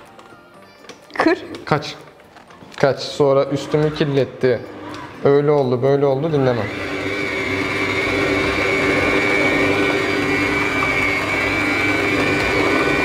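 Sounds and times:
stand mixer motor whine: 3.1s - 13.0s.

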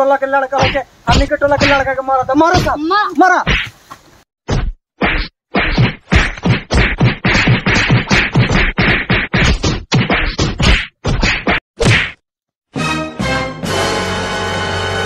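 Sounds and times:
punching and slapping blows: 0.6s - 3.8s, 4.5s - 12.2s.

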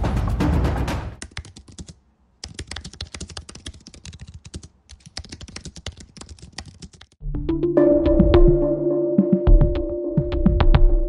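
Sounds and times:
typing on a computer keyboard: 1.2s - 7.2s.

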